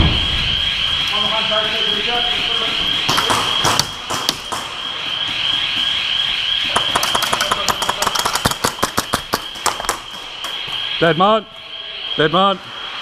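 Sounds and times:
high-pitched whine: 0:00.0 - 0:13.0
airsoft guns firing: 0:03.1 - 0:04.9, 0:06.7 - 0:10.6.

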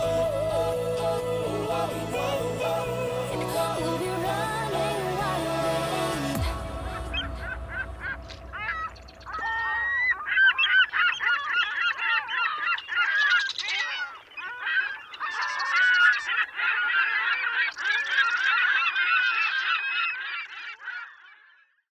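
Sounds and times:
birds squawking: 0:06.9 - 0:21.5
harsh buzzy bird calls: 0:08.5 - 0:21.4.

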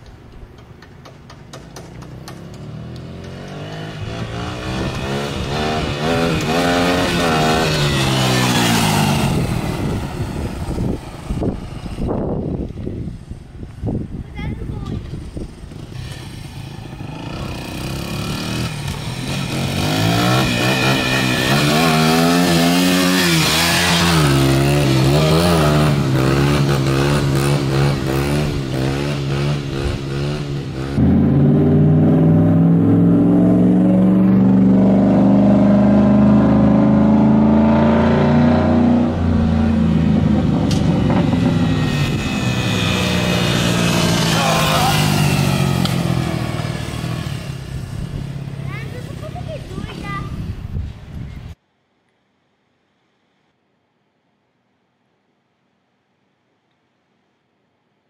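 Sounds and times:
dirt bike engine revving: 0:02.2 - 0:12.3, 0:15.7 - 0:49.5.

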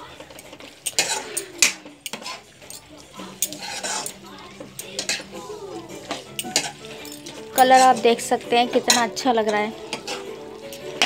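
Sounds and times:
metal spatula scraping pan: 0:00.0 - 0:11.0.

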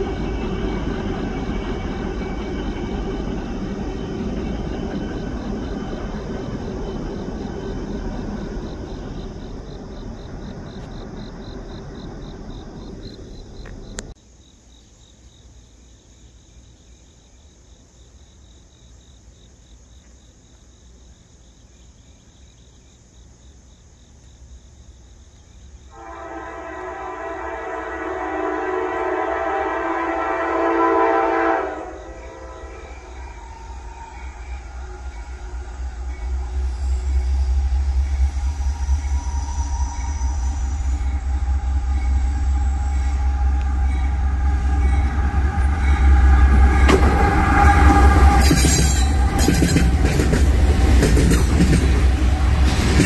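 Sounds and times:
freight train rumbling: 0:00.0 - 0:14.2, 0:24.5 - 0:53.0
insects chirping: 0:00.0 - 0:53.0
locomotive air horn: 0:25.9 - 0:36.1, 0:39.4 - 0:50.2.

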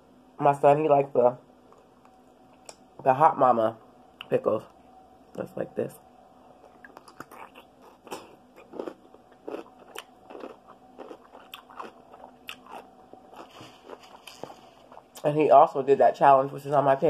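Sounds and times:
pickle crunching and chewing: 0:06.6 - 0:15.3.

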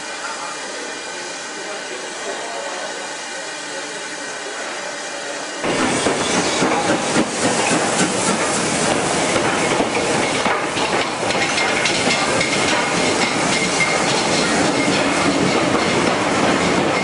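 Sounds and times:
steam hissing: 0:00.0 - 0:17.0
train wheels clattering over rails: 0:05.6 - 0:17.0.

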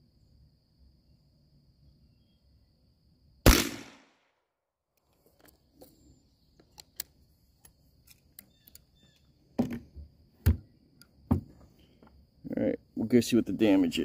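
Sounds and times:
dull thumps: 0:09.6 - 0:11.7.

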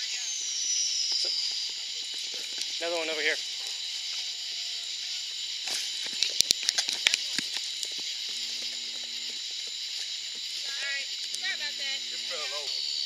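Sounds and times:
firework hiss: 0:00.0 - 0:13.0
firework crackling pops: 0:05.6 - 0:12.0.

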